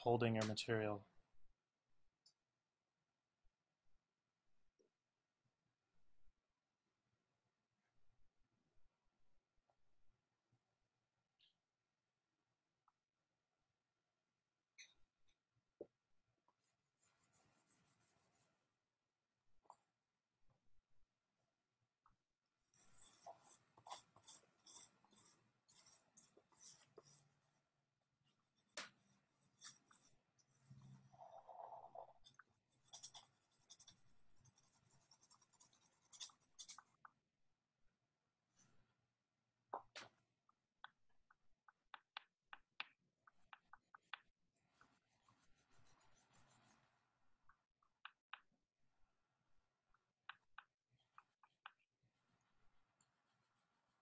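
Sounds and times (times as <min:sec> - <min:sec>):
drawing stick scratching paper: 0:16.5 - 0:18.8, 0:22.6 - 0:37.1, 0:43.3 - 0:47.1.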